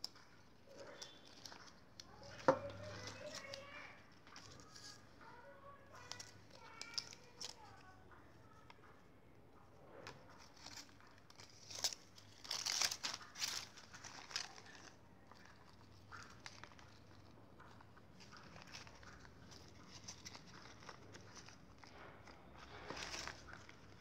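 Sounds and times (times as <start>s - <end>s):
paper leaflet crinkling: 0.0s - 9.0s, 10.0s - 24.0s
balloons rustling: 10.0s - 24.0s.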